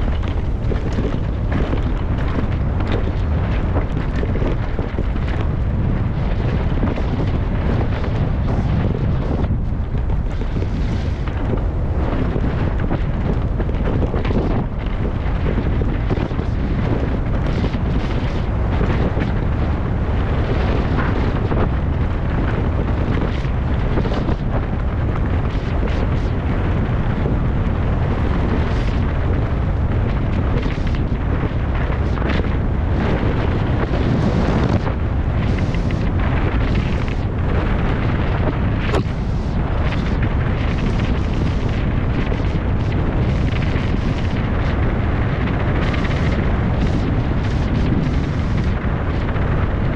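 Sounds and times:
wind rumble on microphone: 0.0 - 49.9.

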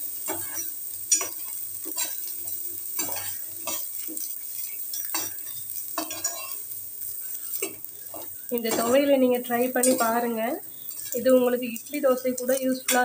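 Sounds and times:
metal spoon scraping a dry pan: 0.2 - 6.6.

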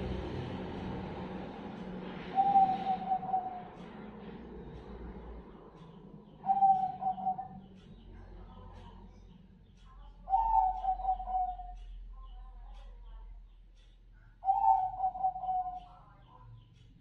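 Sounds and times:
dove cooing: 2.2 - 3.9, 6.4 - 7.7, 10.3 - 11.7, 14.4 - 15.8.

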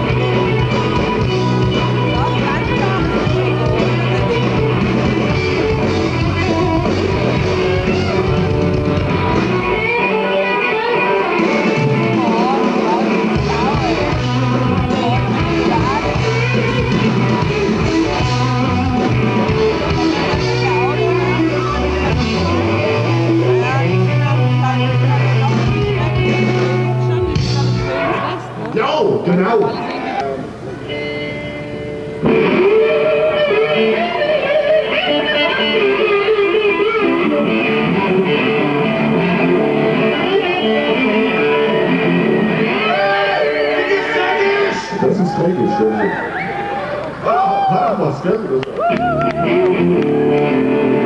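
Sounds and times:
deep bass: 0.0 - 9.9, 13.4 - 28.6
drums: 0.0 - 51.0
electric guitars: 0.0 - 51.0
live rock band: 0.0 - 51.0.

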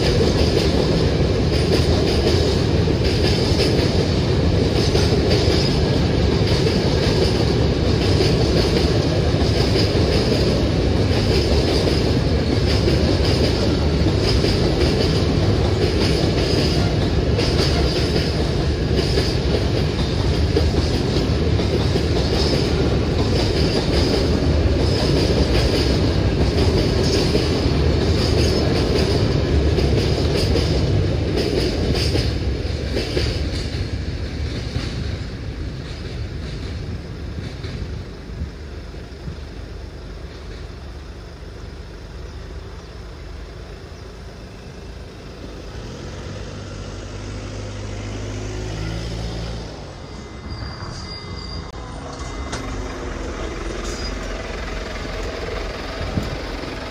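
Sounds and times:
wheels clacking over rail joints: 0.0 - 40.8
freight train rolling past: 0.0 - 56.9.

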